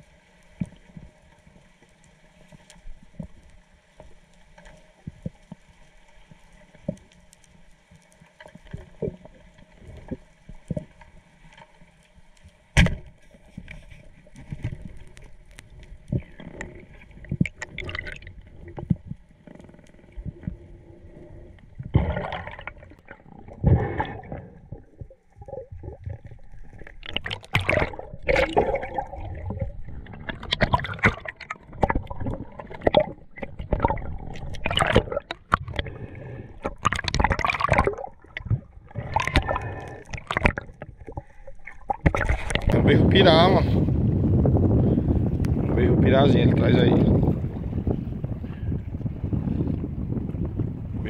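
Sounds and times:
sea water splashing and gurgling: 0.0 - 51.0.

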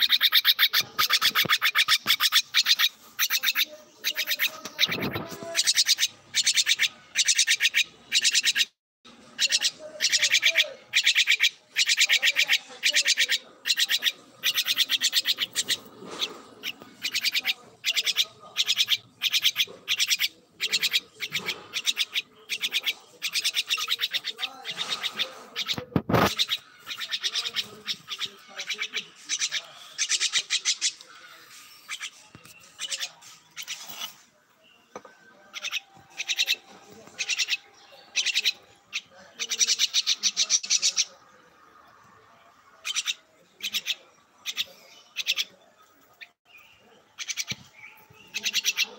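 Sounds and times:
bird harsh buzzy calls: 0.0 - 8.8, 9.4 - 34.3.

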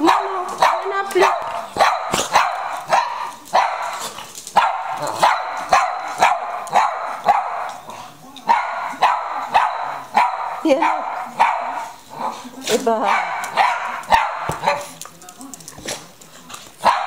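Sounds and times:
small dog barking: 0.0 - 4.0, 4.6 - 7.7, 8.5 - 11.9, 13.0 - 15.0.

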